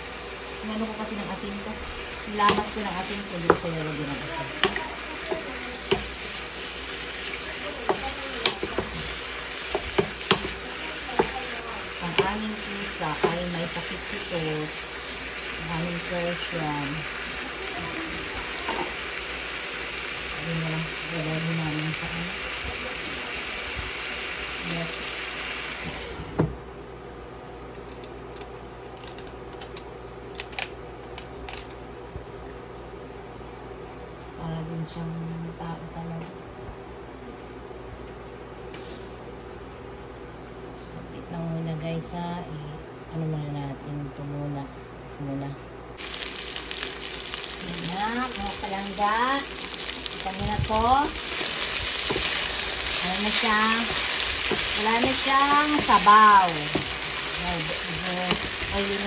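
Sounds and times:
chicken sizzling in a frying pan: 0:00.0 - 0:26.2, 0:46.0 - 0:59.0
wooden spatula knocking and scraping pan: 0:02.4 - 0:03.8, 0:04.6 - 0:06.3, 0:07.8 - 0:11.5, 0:12.1 - 0:13.6, 0:51.3 - 0:52.5, 0:53.2 - 0:59.0.

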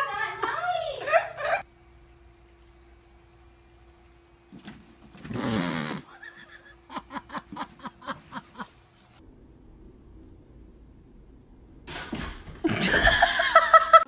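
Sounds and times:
person laughing: 0:06.0 - 0:08.8, 0:12.6 - 0:14.0.

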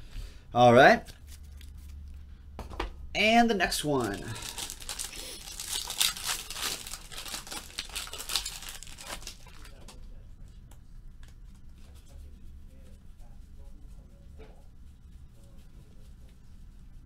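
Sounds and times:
cards rustling and ticking: 0:01.0 - 0:02.2, 0:03.8 - 0:11.8
foil wrapper tearing and crinkling: 0:03.9 - 0:10.0.

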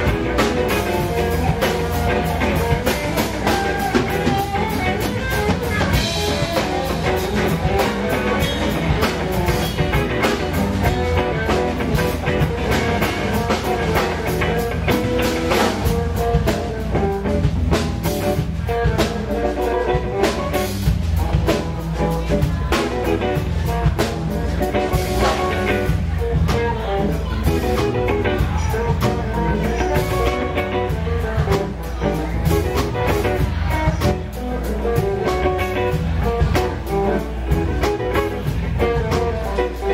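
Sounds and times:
drum kit: 0:00.0 - 0:39.9
electric guitar lead lines: 0:00.0 - 0:39.9
steady low bass: 0:00.0 - 0:39.9.

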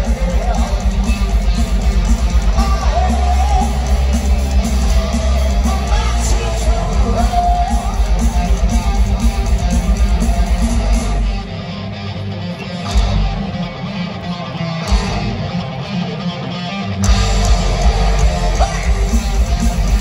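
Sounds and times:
lead guitar melody: 0:00.0 - 0:20.0
live heavy metal band: 0:00.0 - 0:20.0.

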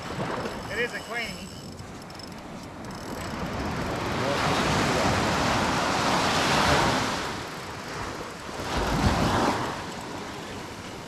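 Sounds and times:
waves washing up a beach: 0:03.4 - 0:11.0.

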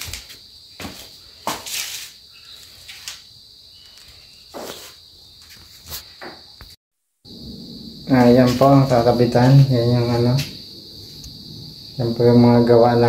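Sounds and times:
footsteps: 0:00.0 - 0:03.2, 0:03.8 - 0:06.8, 0:08.1 - 0:11.4
high-pitched hum: 0:07.3 - 0:13.0.

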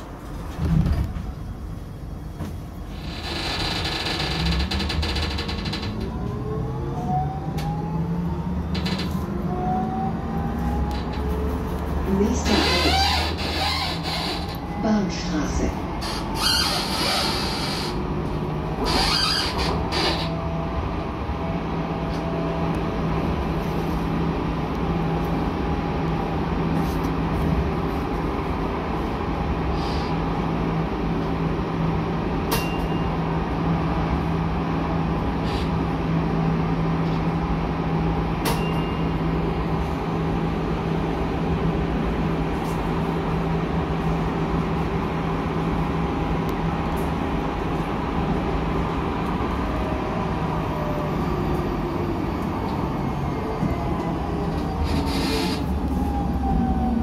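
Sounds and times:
tram motor hum: 0:00.0 - 0:57.0
wheels rumbling on rail: 0:00.0 - 0:57.0.

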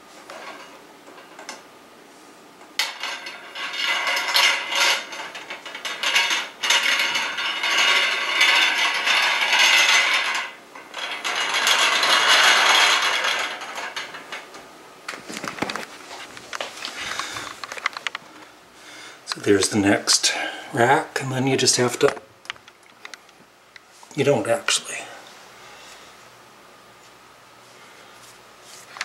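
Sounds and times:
wire shelf rattling and scraping: 0:00.1 - 0:01.6, 0:02.6 - 0:18.5.

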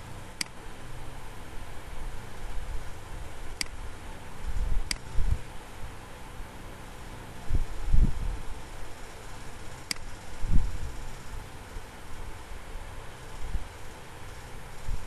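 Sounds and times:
background hiss: 0:00.0 - 0:15.0.

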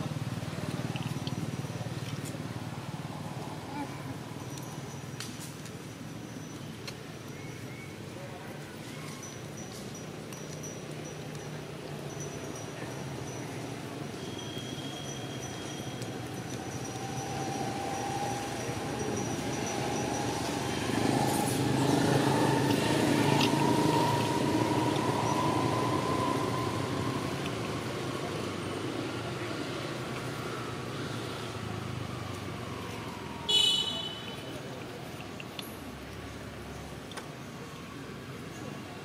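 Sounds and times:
vehicle passing by: 0:16.1 - 0:33.5.

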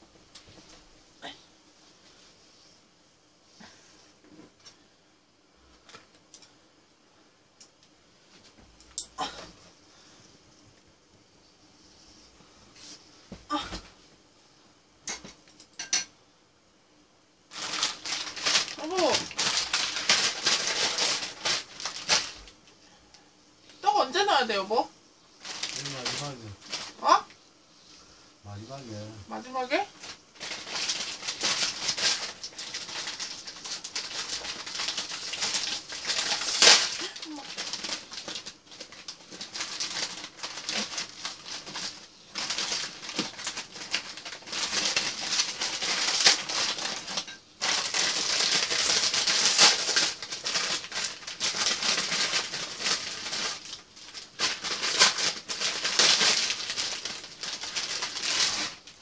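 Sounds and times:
plastic packets crinkling and tearing: 0:17.5 - 0:22.8, 0:25.4 - 0:27.3, 0:28.7 - 0:59.0.

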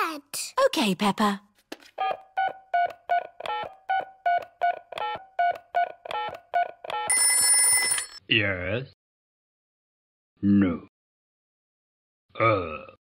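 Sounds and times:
telephone keypad beeps: 0:02.0 - 0:07.9
buzzing phone ring: 0:06.9 - 0:08.2.

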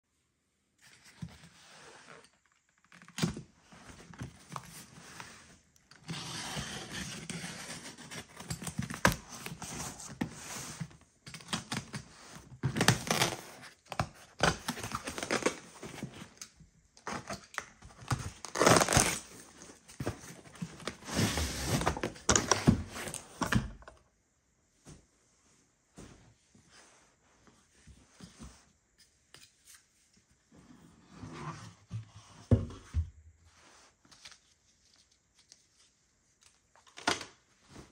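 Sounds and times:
packing tape tearing: 0:12.7 - 0:13.7, 0:17.1 - 0:19.3.

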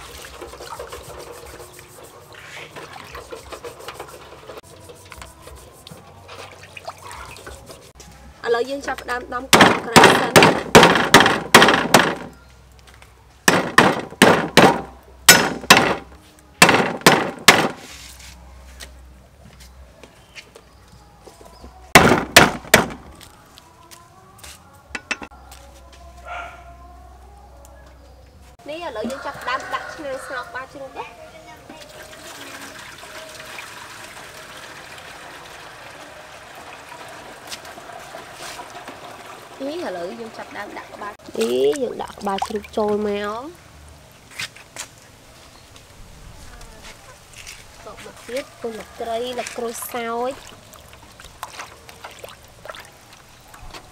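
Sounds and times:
cleaver chopping on wooden block: 0:09.6 - 0:12.3, 0:13.5 - 0:17.8, 0:22.0 - 0:23.1
water pouring into a pot: 0:31.9 - 0:42.8.

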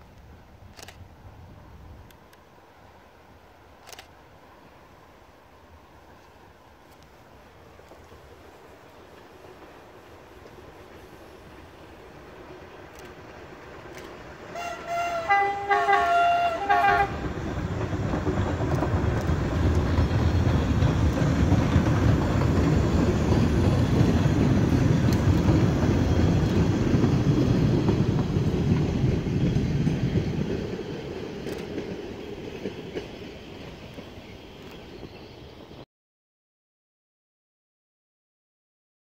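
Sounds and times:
train rumbling past on track: 0:00.0 - 0:35.8
subway train horn blasts: 0:14.4 - 0:17.5.

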